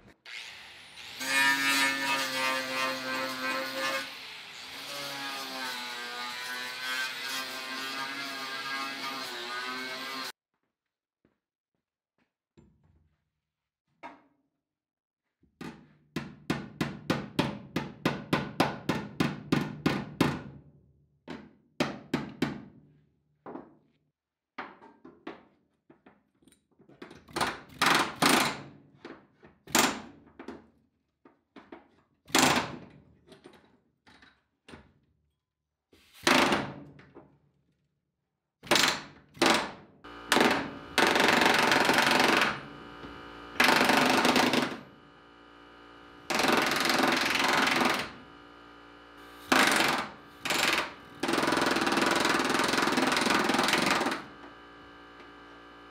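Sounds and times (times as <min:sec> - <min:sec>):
air hammer pounding steel: 0:40.2 - 0:42.7, 0:43.6 - 0:44.9, 0:46.3 - 0:48.2, 0:49.4 - 0:54.2.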